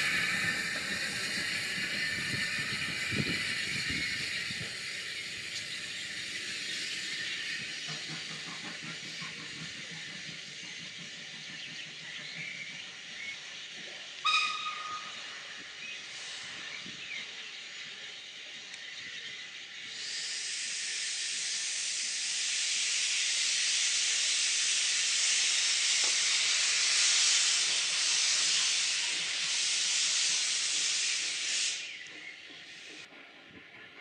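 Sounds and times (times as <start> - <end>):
steam engine hissing: 0.0 - 34.0
steam whistle toot: 14.2 - 15.5.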